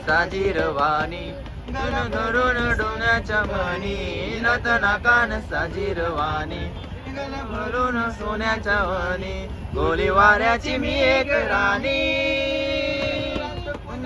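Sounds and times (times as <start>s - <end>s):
men singing folk song: 0.0s - 14.0s.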